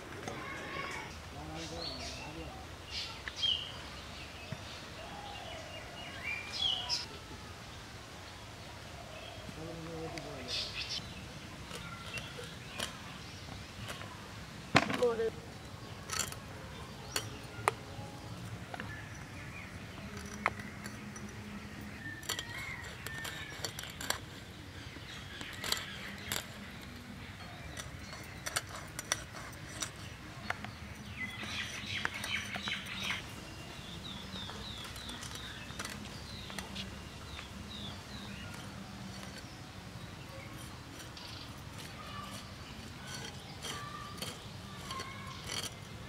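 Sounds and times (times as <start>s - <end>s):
birds chirping: 0.0s - 46.0s
fish scales scraping on blade: 22.1s - 27.0s, 40.3s - 46.0s.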